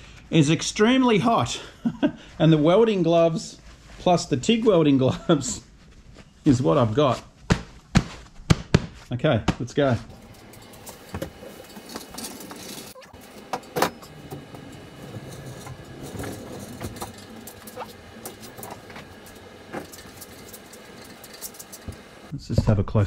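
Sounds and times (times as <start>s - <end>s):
metal clanks and knocks: 10.1s - 22.3s.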